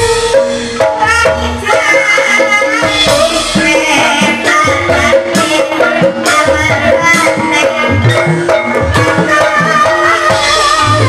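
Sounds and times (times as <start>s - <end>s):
drum beat: 0.0s - 11.0s.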